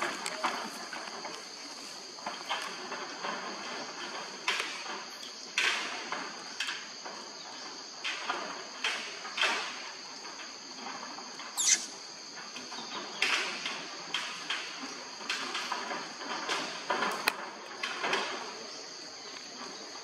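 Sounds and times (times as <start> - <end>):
high insect chirring: 10.6 - 13.2
high falling squeak: 11.5 - 12.0.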